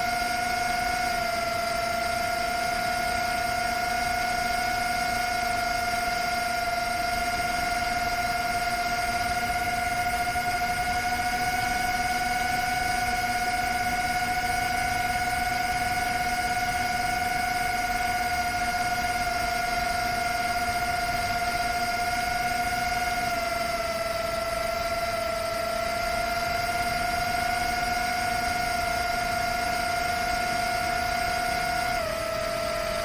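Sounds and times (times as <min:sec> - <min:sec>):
drone motors whining: 0:00.0 - 0:33.0.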